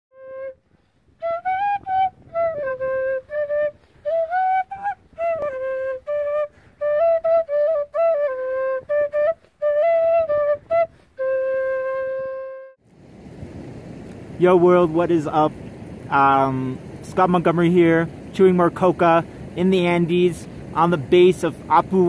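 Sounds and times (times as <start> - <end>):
end-blown flute melody: 0.1 - 12.8.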